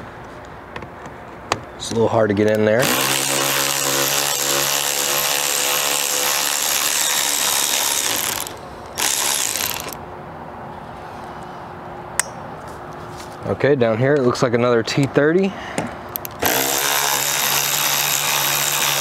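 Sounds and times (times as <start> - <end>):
electric ratchet running: 2.8 - 10.0, 16.2 - 19.0.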